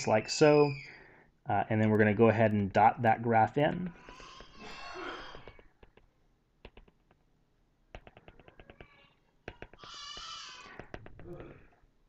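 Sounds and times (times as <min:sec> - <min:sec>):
stylus tapping on glass screen: 0:05.4 - 0:07.3, 0:07.9 - 0:11.7.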